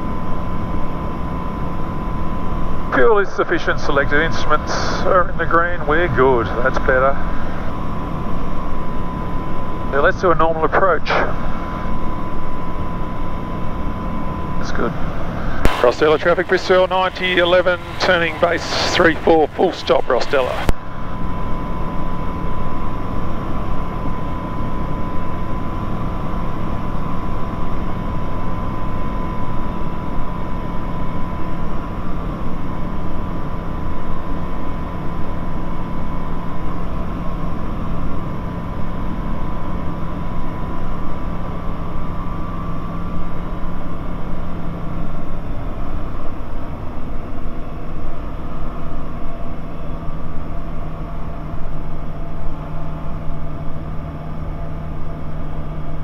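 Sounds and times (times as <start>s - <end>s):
light aircraft engine droning: 0.0s - 56.0s.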